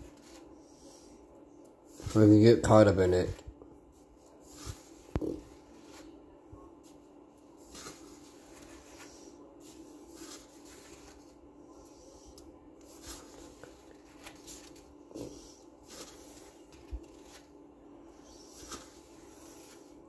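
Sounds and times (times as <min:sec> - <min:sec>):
faint steady hum: 0:00.0 - 0:20.0
paper pages rustling: 0:07.6 - 0:11.4, 0:12.8 - 0:15.0, 0:15.8 - 0:17.6, 0:18.3 - 0:20.0.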